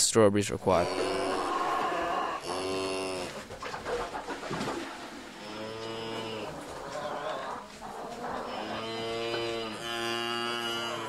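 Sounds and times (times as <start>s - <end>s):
cow mooing: 0.8s - 3.4s, 5.4s - 7.3s, 8.4s - 11.0s.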